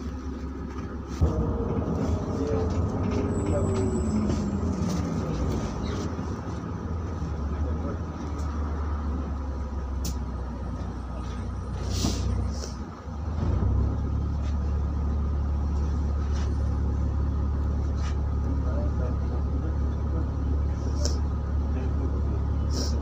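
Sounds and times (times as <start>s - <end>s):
bus engine humming: 0.0s - 23.0s.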